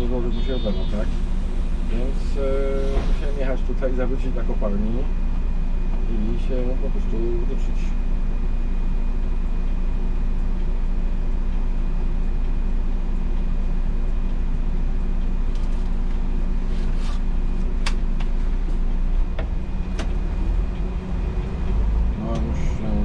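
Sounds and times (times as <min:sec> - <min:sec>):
faint high whine: 0:00.0 - 0:08.0
diesel bus engine idling: 0:00.0 - 0:23.0.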